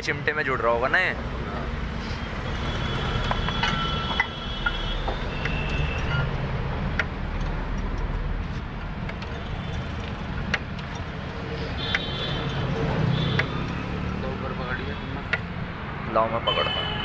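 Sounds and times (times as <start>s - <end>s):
light metallic clicks and knocks: 6.9s - 12.7s.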